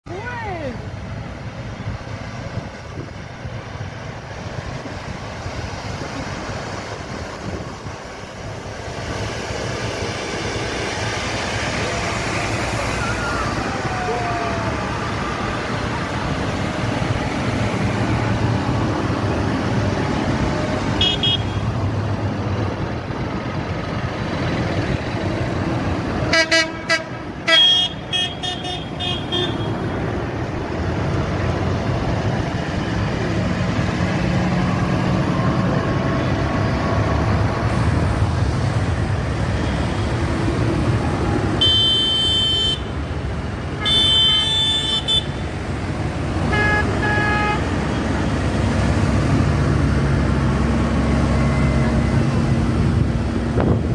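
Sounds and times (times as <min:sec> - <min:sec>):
tractor diesel engines: 0:00.0 - 0:53.9
horns tooting: 0:21.0 - 0:21.8, 0:26.3 - 0:29.9, 0:41.6 - 0:43.0, 0:43.8 - 0:45.5, 0:46.4 - 0:48.1.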